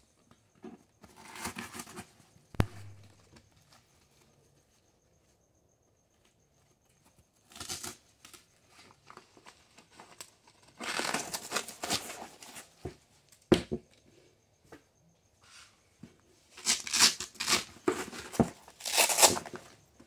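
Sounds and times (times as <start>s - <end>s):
velcro ripping: 16.6s - 17.7s, 18.8s - 19.4s.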